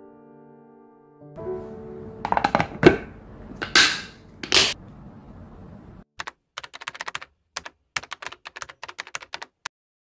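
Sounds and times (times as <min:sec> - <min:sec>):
plastic lid clattering on container: 0:02.3 - 0:03.1
rapid typing clicks: 0:06.2 - 0:09.7.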